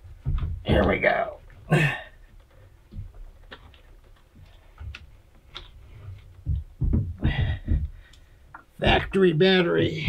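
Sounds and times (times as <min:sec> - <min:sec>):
battery knocks and thumps: 0:06.3 - 0:08.7.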